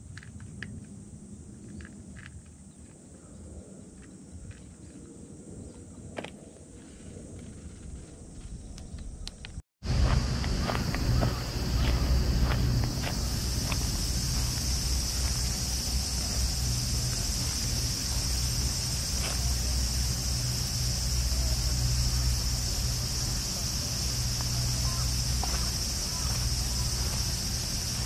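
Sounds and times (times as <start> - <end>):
low rumble: 9.8 - 28.0
high-pitched insect chirring: 9.9 - 28.0.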